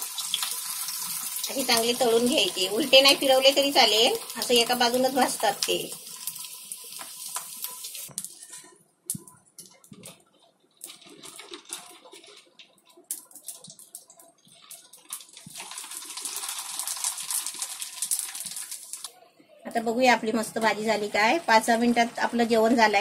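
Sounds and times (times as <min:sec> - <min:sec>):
hot oil sizzling: 0:00.0 - 0:08.5, 0:13.0 - 0:19.1, 0:19.8 - 0:23.0.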